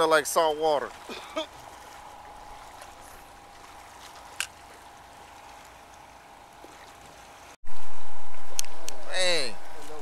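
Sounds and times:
water lapping against rocks: 0:00.0 - 0:07.6
faint steady hum: 0:00.1 - 0:10.0.

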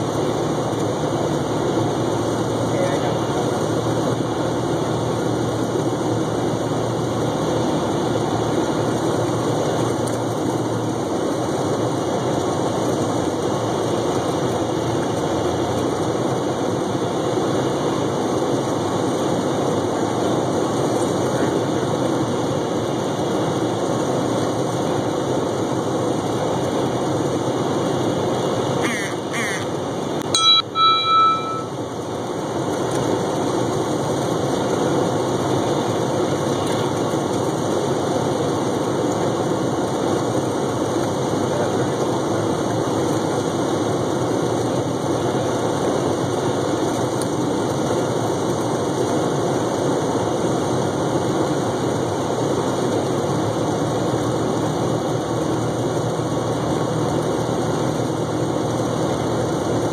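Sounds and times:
propeller airplane engine droning: 0:00.0 - 0:59.9
short high tone: 0:30.3 - 0:31.8.

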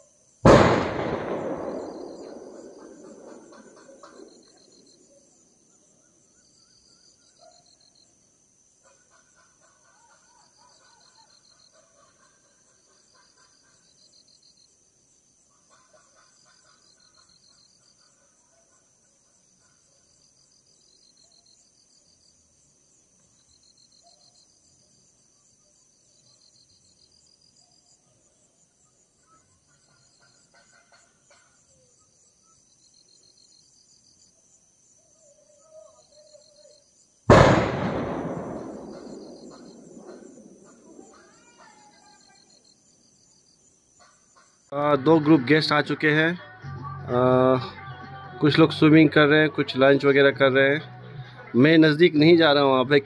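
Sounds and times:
insects trilling: 0:00.0 - 0:53.0
low pulsed insect calls: 0:00.0 - 0:53.0.

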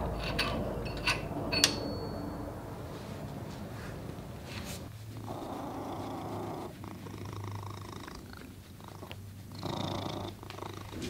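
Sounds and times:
cat purring: 0:03.9 - 0:11.0.

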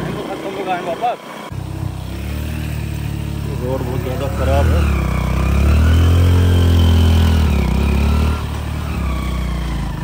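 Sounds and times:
motorcycle engine revving: 0:00.0 - 0:10.0.

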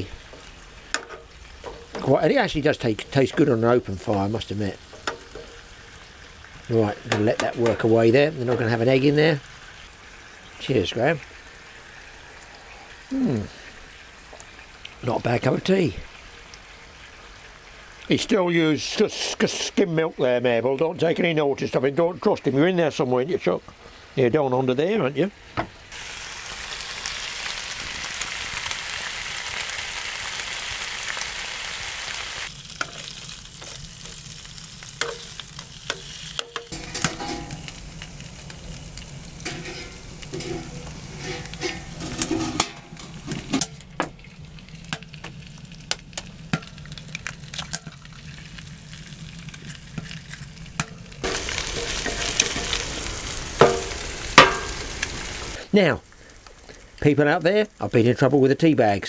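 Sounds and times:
bacon and egg sizzling in pan: 0:00.0 - 0:20.2, 0:25.4 - 0:59.0
tongs clinking metal: 0:35.0 - 0:35.3, 0:35.9 - 0:37.8, 0:39.4 - 0:43.8.

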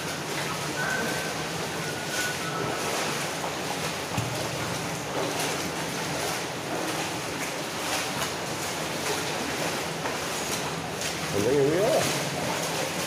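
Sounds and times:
footsteps on wet metal floor: 0:00.0 - 0:13.0.

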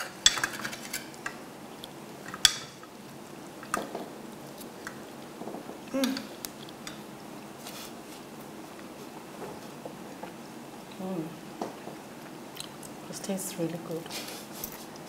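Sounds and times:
cutlery clinking on ceramic plates: 0:00.0 - 0:01.0.

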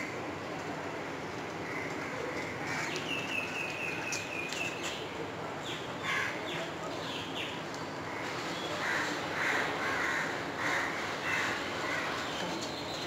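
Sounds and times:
crow cawing: 0:08.8 - 0:12.1.

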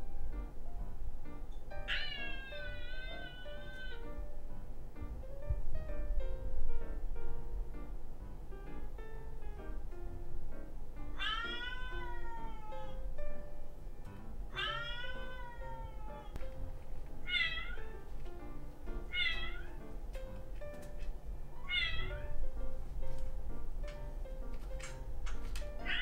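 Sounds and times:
background music: 0:00.0 - 0:26.0
cat meowing: 0:01.8 - 0:04.3, 0:11.1 - 0:13.1, 0:14.5 - 0:16.4, 0:17.2 - 0:18.1, 0:19.1 - 0:19.8, 0:21.6 - 0:22.4, 0:25.8 - 0:26.0.

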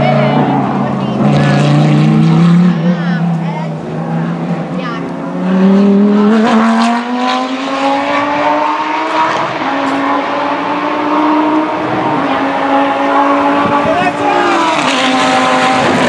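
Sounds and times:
race car engine under power: 0:00.0 - 0:16.0.

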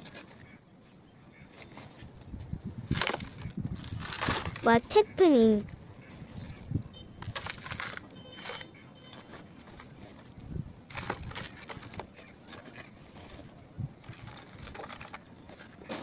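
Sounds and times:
plastic sack rustling: 0:02.8 - 0:04.8, 0:07.2 - 0:10.3.

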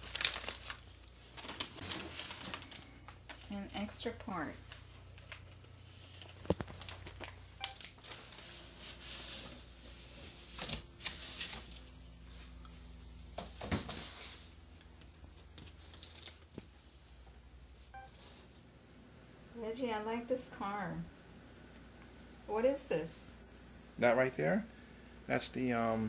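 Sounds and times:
plastic bag crinkling: 0:00.0 - 0:04.0, 0:05.0 - 0:09.3, 0:15.6 - 0:16.6.

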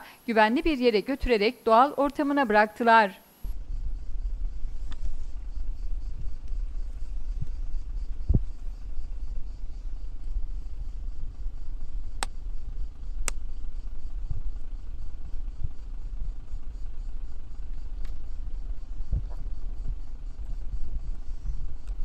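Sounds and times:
sharp clicks: 0:13.2 - 0:13.4.

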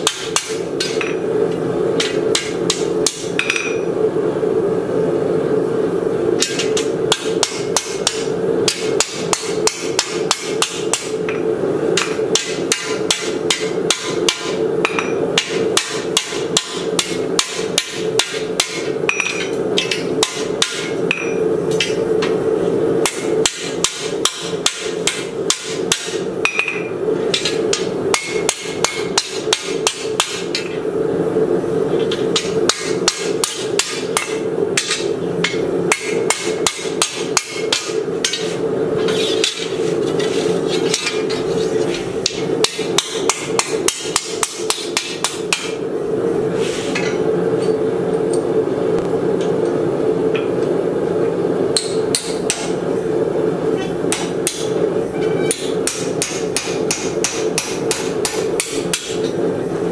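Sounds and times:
hammer striking metal on anvil: 0:00.0 - 0:01.2, 0:02.0 - 0:03.9, 0:06.4 - 0:11.4, 0:12.0 - 0:22.4, 0:23.0 - 0:30.8, 0:32.1 - 0:39.8, 0:40.8 - 0:41.4, 0:42.2 - 0:45.8, 0:51.7 - 0:52.8, 0:54.1 - 0:59.4
steady hum: 0:00.0 - 0:59.9.

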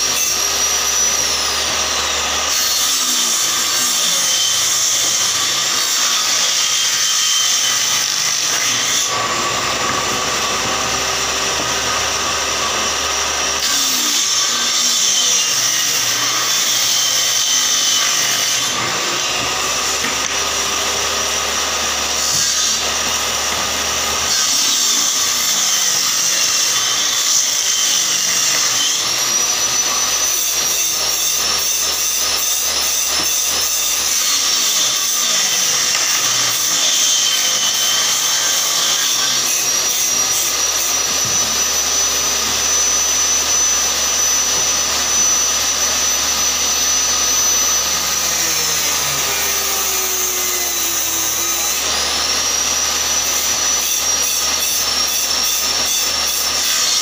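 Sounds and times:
table saw cutting wood: 0:00.0 - 0:57.0.

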